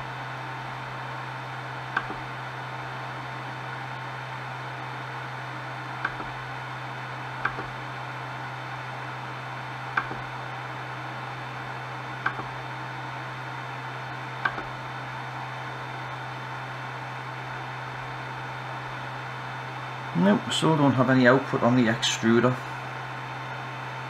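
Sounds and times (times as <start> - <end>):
printer hiss and hum: 0.0 - 24.0
control knob clicks: 1.9 - 2.2, 7.4 - 7.7, 10.0 - 10.3, 12.2 - 12.5.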